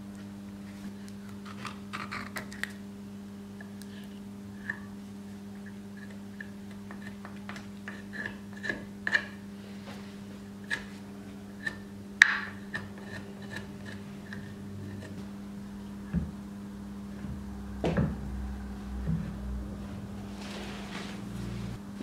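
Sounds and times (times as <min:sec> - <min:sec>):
steady low hum: 0:00.0 - 0:22.0
wooden stick tapping and scraping: 0:05.6 - 0:09.4, 0:11.6 - 0:15.3.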